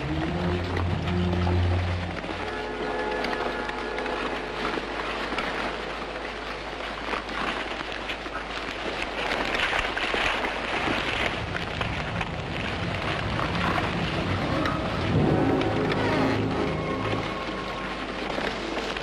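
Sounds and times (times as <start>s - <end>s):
heavy rain: 0.0s - 19.0s
wind: 0.0s - 19.0s
low thunder rumble: 11.2s - 19.0s.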